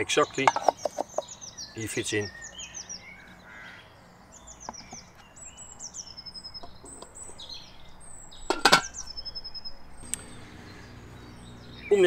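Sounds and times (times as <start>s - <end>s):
birds singing: 0.0s - 12.0s
metal lid clattering onto pan: 8.5s - 9.0s.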